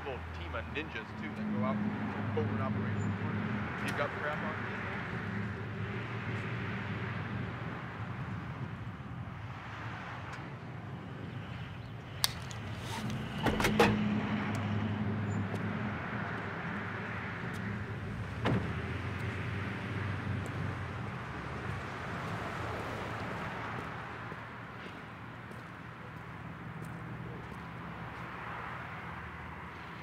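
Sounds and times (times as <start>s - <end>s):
traffic and engine rumble: 0.0s - 30.0s
car door latch clicking: 13.4s - 14.0s.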